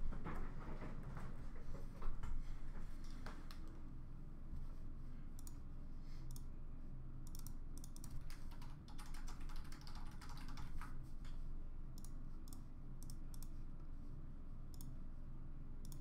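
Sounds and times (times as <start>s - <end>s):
low steady hum: 0.0s - 16.0s
typing on computer keyboard: 7.3s - 11.0s.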